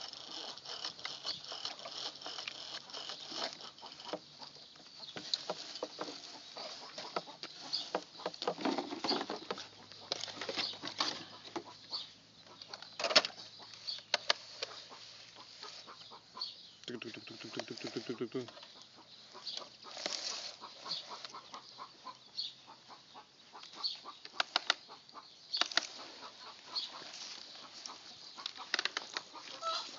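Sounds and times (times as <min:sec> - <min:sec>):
plastic toy trucks clicking: 0:00.0 - 0:04.5, 0:25.6 - 0:26.0, 0:28.4 - 0:29.8
chickens clucking: 0:03.4 - 0:29.9.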